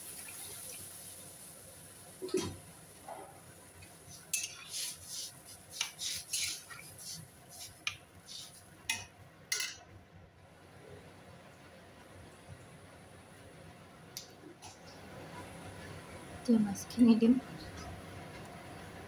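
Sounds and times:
metal spatula scraping a wok: 4.3 - 9.0.

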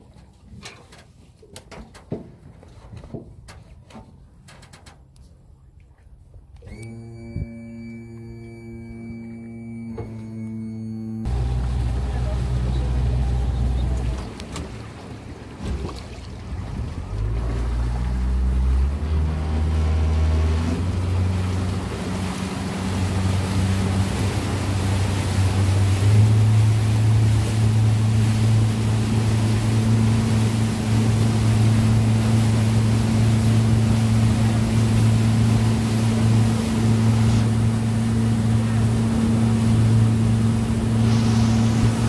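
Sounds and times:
motorboat engine running: 0.0 - 42.0
water rushing past hull: 5.4 - 42.0
wind on microphone: 40.7 - 42.0.

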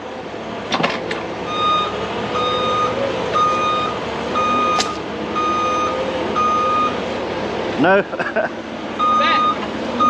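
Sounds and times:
engine running: 0.0 - 10.0
backup alarm beeping: 1.5 - 7.0, 9.0 - 9.6.

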